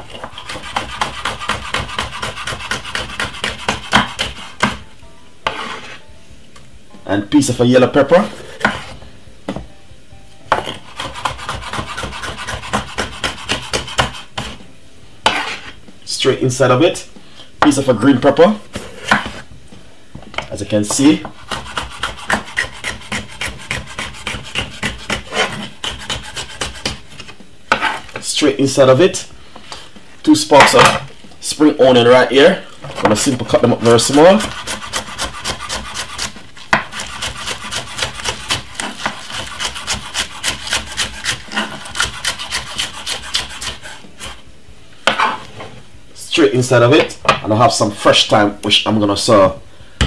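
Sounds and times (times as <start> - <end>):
knife chopping on wooden board: 0.1 - 4.8, 8.6 - 9.0, 10.5 - 14.6, 15.2 - 15.6, 18.7 - 19.4, 20.9 - 28.1, 33.0 - 44.4.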